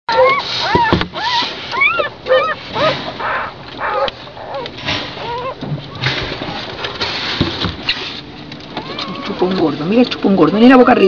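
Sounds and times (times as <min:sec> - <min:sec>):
puppies whimpering and squeaking: 0:00.1 - 0:06.8, 0:08.8 - 0:10.0.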